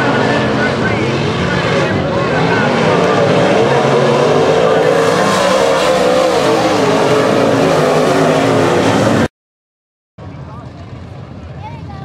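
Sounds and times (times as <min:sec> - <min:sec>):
race car engines: 0:00.0 - 0:09.3, 0:10.2 - 0:12.0.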